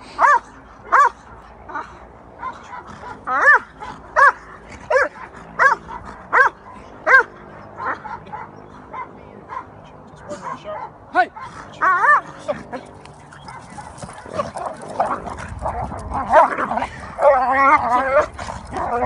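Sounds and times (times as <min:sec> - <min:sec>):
dog barking: 0:00.2 - 0:01.2, 0:02.4 - 0:09.7, 0:10.3 - 0:12.4, 0:13.4 - 0:15.2.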